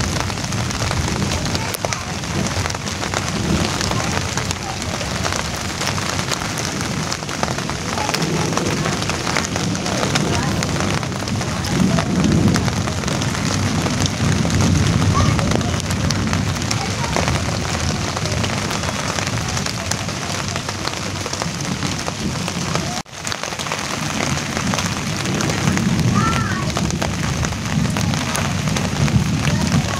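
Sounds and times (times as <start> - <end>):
rain on broad leaves: 0.0 - 29.9.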